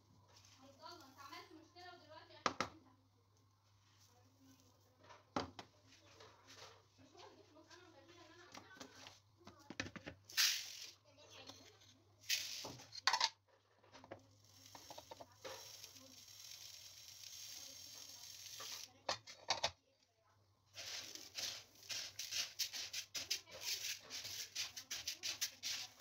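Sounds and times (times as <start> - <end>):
hand stirring grains: 10.3 - 11.0, 12.2 - 12.9, 14.3 - 19.0, 20.7 - 26.0
lentils poured into colander: 10.3 - 11.0, 12.2 - 13.0, 14.3 - 18.9, 20.7 - 26.0.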